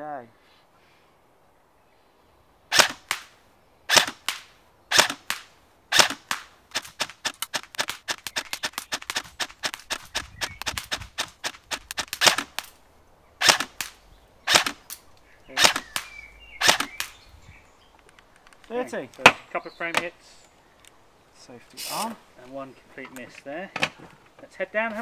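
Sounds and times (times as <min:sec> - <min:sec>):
airsoft rifle shots: 0:02.7 - 0:12.8, 0:13.4 - 0:17.2.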